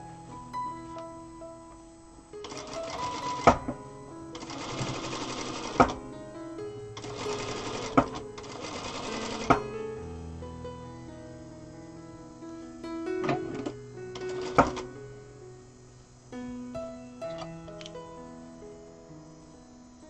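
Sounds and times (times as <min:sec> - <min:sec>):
plucked-string background music: 0:00.0 - 0:11.7, 0:12.9 - 0:15.4, 0:16.4 - 0:20.0
sewing machine stitching: 0:02.4 - 0:03.6, 0:04.4 - 0:06.0, 0:07.0 - 0:09.6, 0:13.2 - 0:14.8.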